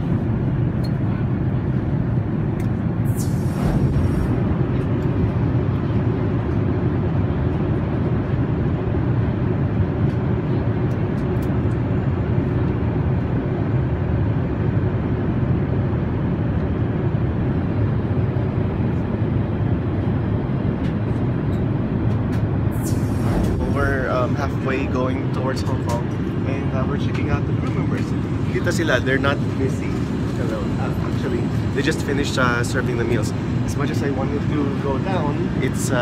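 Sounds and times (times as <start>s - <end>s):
airplane cabin engine rush: 0.0s - 36.0s.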